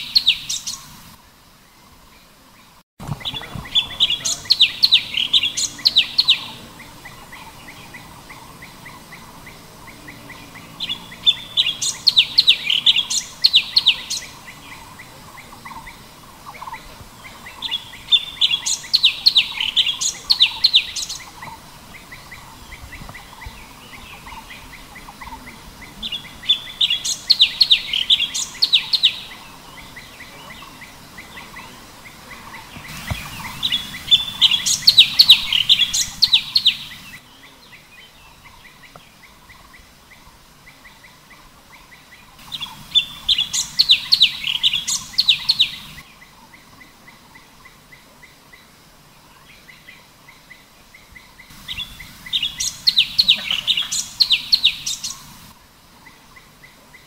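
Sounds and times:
bird chirping high notes: 32.9s - 37.2s.

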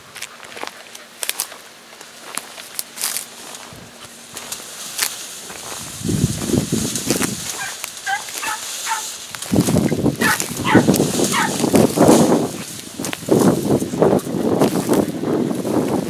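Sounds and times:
rustling footsteps through vegetation: 0.0s - 16.0s
dogs yelping: 7.5s - 9.2s, 10.2s - 11.8s.

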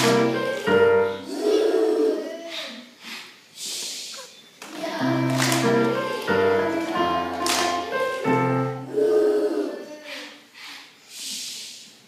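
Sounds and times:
sharp claps: 0.0s - 0.8s, 4.6s - 6.4s, 7.4s - 7.9s.

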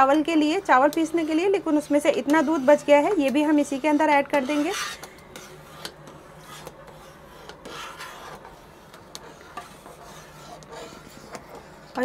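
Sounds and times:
spoon stirring in a pot: 0.0s - 12.0s.

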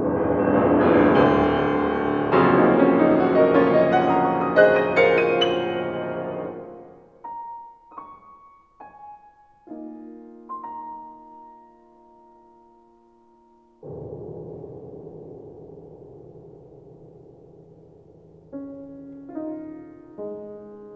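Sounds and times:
solo piano: 0.0s - 14.0s, 18.4s - 20.9s.

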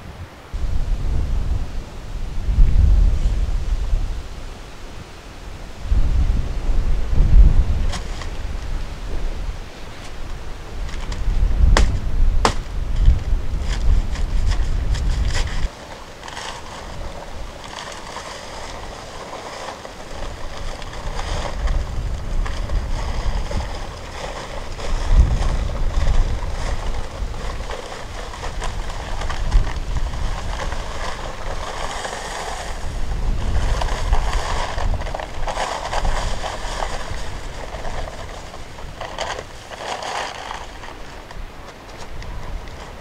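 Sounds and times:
wind gusts on microphone: 0.0s - 43.0s
blade slitting paper sack: 7.8s - 8.7s, 10.8s - 43.0s.

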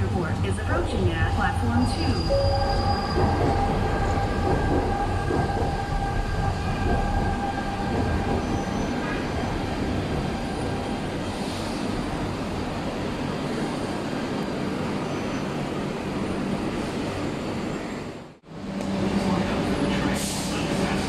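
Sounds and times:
train cars rumbling: 0.0s - 15.7s.

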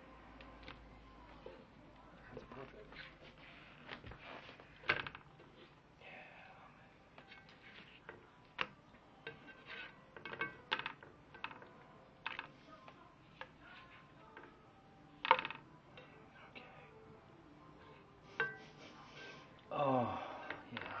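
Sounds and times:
spatula scraping a frying pan: 9.2s - 10.1s.

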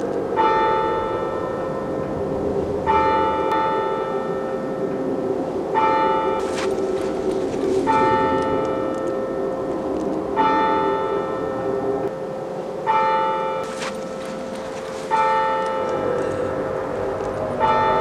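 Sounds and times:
eerie sustained drone: 0.0s - 18.0s
bell tolling: 5.8s - 18.0s.

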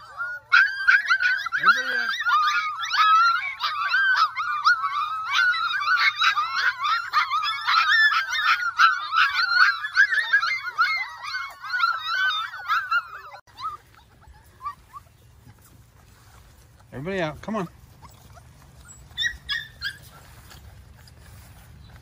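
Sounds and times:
puppies whining and yipping: 0.0s - 22.0s.

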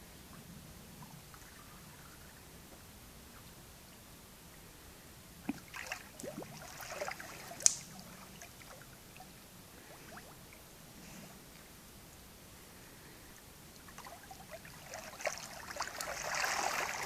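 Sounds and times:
water slap: 5.5s - 8.0s.

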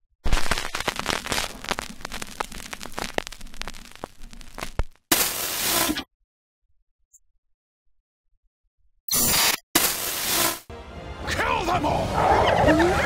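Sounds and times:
old film crackle: 0.2s - 5.9s
tv static hiss: 0.3s - 5.8s.

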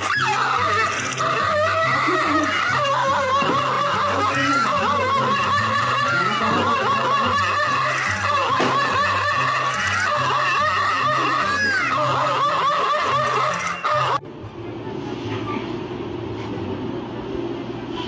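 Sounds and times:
snickering laughter: 0.2s - 14.2s.

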